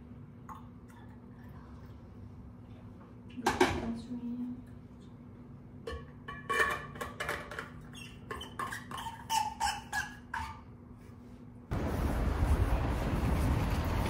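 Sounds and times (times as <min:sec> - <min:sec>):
kitchenware clinking and squeaking: 0:05.9 - 0:10.8.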